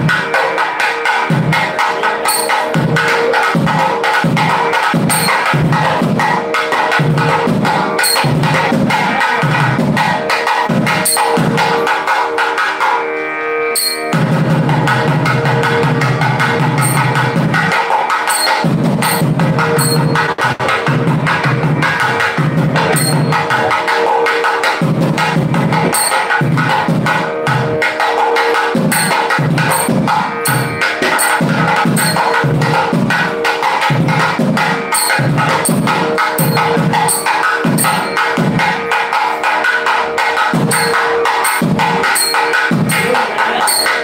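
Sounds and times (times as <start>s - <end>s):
music with drum beat: 0.0s - 12.8s, 13.8s - 44.0s
sharp percussion strikes: 0.0s - 13.0s, 13.6s - 44.0s
held drone tone: 1.7s - 6.0s, 7.0s - 20.5s, 22.7s - 44.0s.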